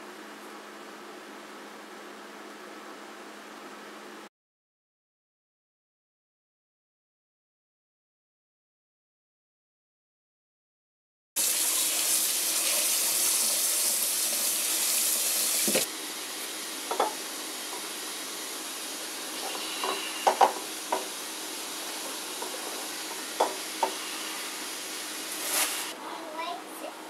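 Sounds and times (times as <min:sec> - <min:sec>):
tap water running into sink: 0:11.4 - 0:18.0, 0:19.4 - 0:25.0.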